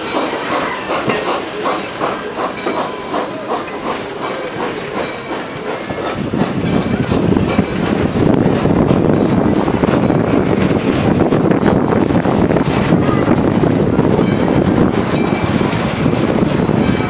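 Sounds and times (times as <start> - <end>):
train wheels clicking over rail joints: 0.0 - 17.0.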